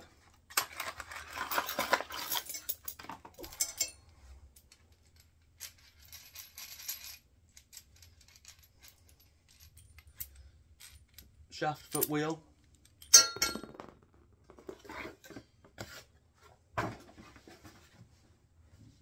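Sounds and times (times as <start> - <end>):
nuts and bolts rattling: 0.6 - 14.1.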